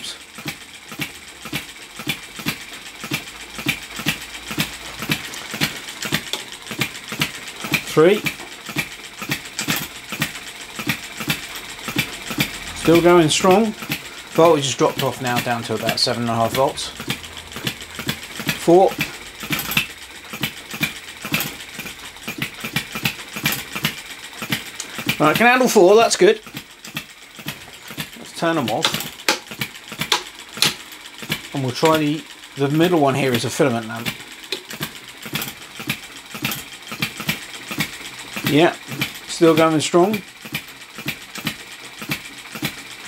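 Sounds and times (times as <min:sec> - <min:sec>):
small engine clacking: 0:00.0 - 0:43.0.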